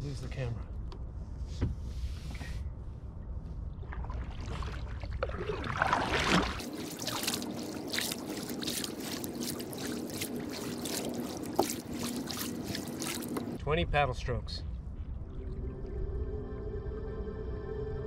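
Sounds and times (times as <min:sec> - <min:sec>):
kayak paddle splashing: 0:03.9 - 0:13.6
water trickling off paddle: 0:03.9 - 0:13.6
low rumble: 0:13.6 - 0:18.0.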